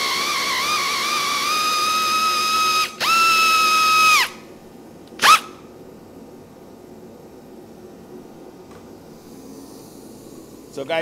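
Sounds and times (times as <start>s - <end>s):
electric drill whining: 0.0s - 4.4s.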